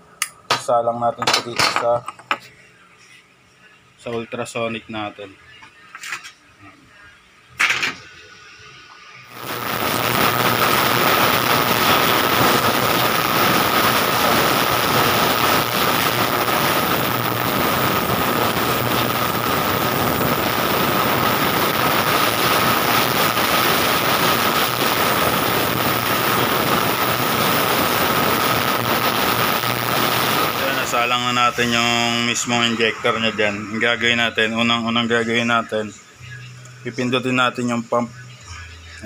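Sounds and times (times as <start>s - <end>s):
high-pitched hum: 8.4s - 39.0s
ultrasonic cleaner hissing: 9.3s - 34.8s.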